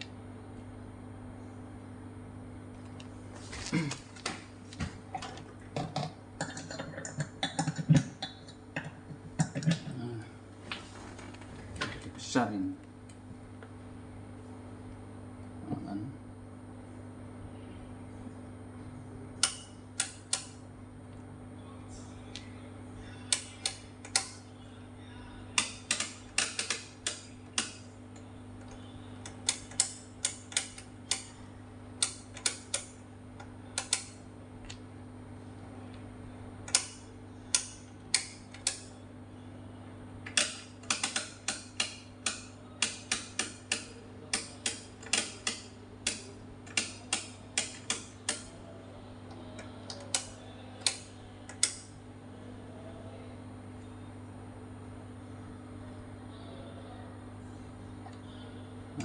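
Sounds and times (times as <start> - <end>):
steady low hum: 0.0 - 59.0
rotary knobs clicking: 19.4 - 20.6, 23.3 - 24.4, 25.6 - 31.4, 32.0 - 34.8, 36.6 - 39.0, 40.2 - 48.6, 49.3 - 51.9.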